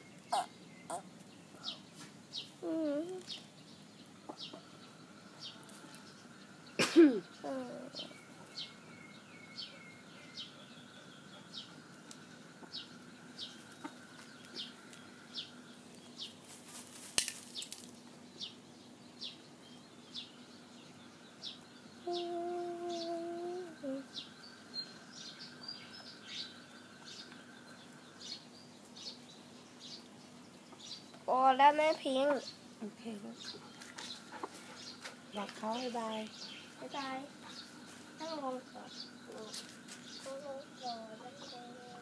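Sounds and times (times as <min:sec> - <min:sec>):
small bird chirping: 0:00.0 - 0:42.0
hens clucking: 0:12.6 - 0:14.9, 0:33.5 - 0:35.2.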